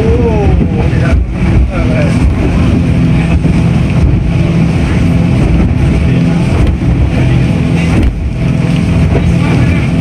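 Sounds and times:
boat engine droning: 0:00.0 - 0:10.0
constant rushing noise: 0:00.0 - 0:10.0.

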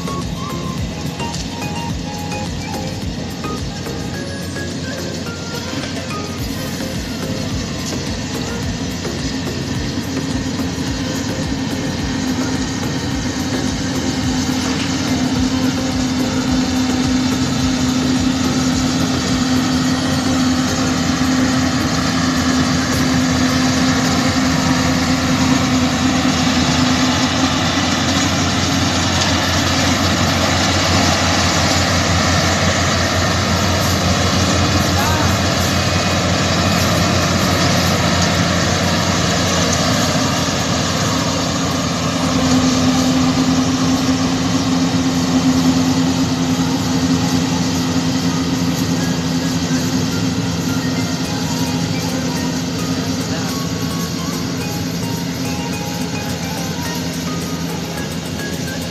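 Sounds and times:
combine harvester diesel engine: 0:00.0 - 0:58.9.

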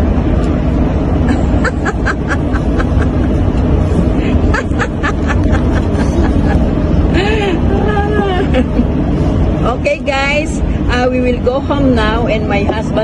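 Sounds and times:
road and engine rumble: 0:00.0 - 0:13.0
child giggling: 0:01.3 - 0:03.5, 0:04.3 - 0:08.9.

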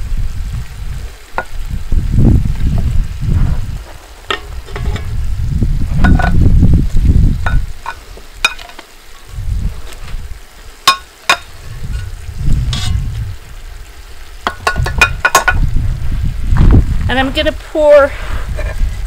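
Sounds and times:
meat sizzling in a pot: 0:00.0 - 0:16.9
low rumble: 0:01.6 - 0:07.6, 0:11.6 - 0:14.0
metal tongs clinking on pot: 0:07.4 - 0:08.8, 0:14.5 - 0:15.6.

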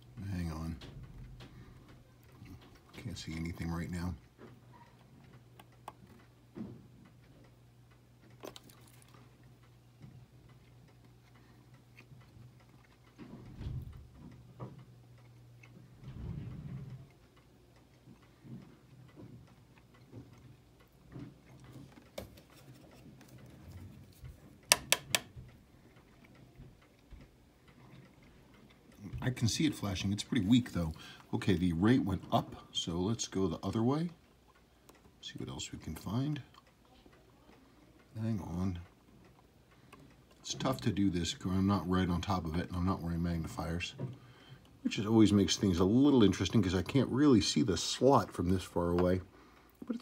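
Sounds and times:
small clicks and taps: 0:00.6 - 0:29.4.

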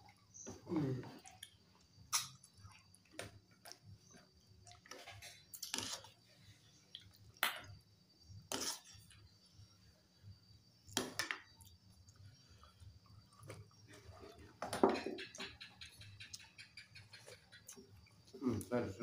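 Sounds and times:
chewing and mouth smacks: 0:01.2 - 0:06.2, 0:06.9 - 0:07.4.

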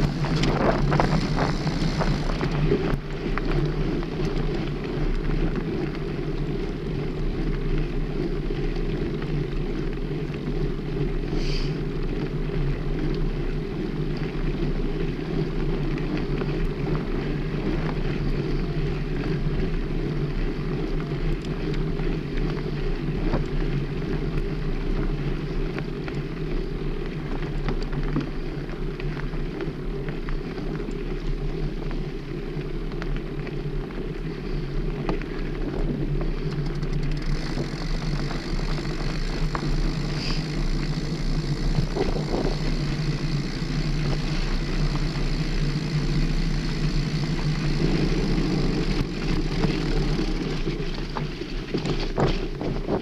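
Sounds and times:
wind buffeting microphone: 0:00.0 - 0:10.2, 0:34.0 - 0:53.0
bike rattling and knocking: 0:00.0 - 0:53.0
bike tyres rumbling on dirt: 0:00.0 - 0:53.0.

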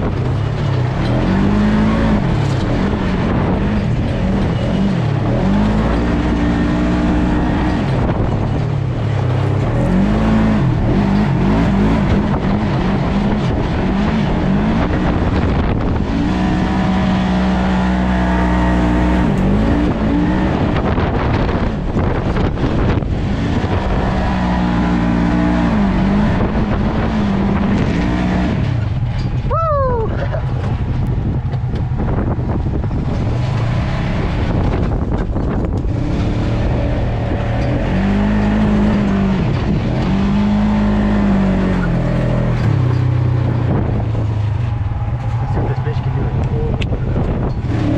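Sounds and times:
engine revving: 0:00.0 - 0:47.9
rush of ride noise: 0:00.0 - 0:47.9.

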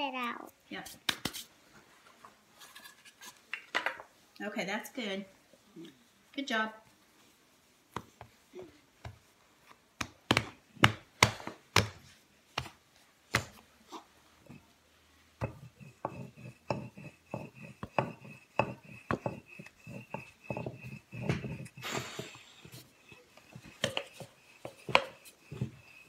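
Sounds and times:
hands patting dough on stone: 0:00.8 - 0:01.5, 0:07.9 - 0:08.4, 0:09.0 - 0:13.7, 0:15.3 - 0:26.0.

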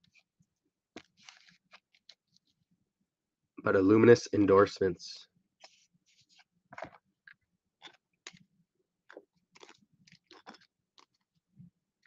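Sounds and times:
trading cards handled in plastic: 0:01.0 - 0:02.5.

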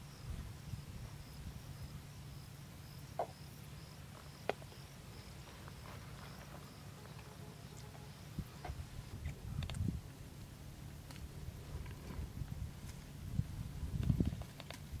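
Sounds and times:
insect chirping: 0:00.0 - 0:09.9
low steady hum: 0:00.0 - 0:15.0.

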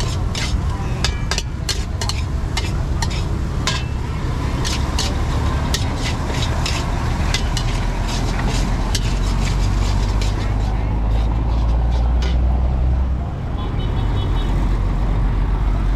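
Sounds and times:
metal spatulas scraping woks: 0:00.0 - 0:12.6.

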